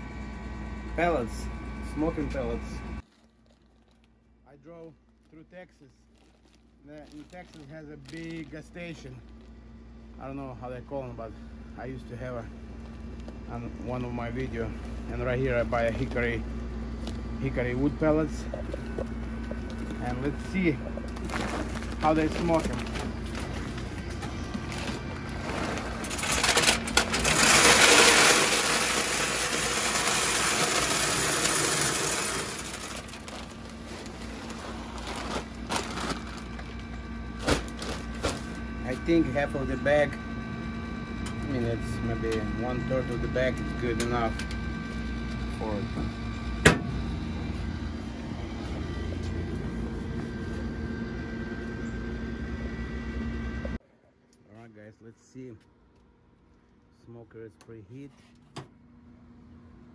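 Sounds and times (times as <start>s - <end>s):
smoker fan humming: 0.0s - 59.9s
wood pellets pouring into metal hopper: 25.4s - 36.0s.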